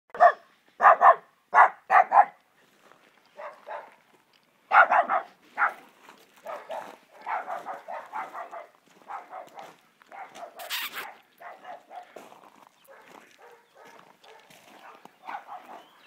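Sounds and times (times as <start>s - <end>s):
small dog barking: 0.2s - 2.4s, 3.4s - 4.0s, 4.7s - 5.8s, 6.4s - 12.2s, 12.9s - 16.0s.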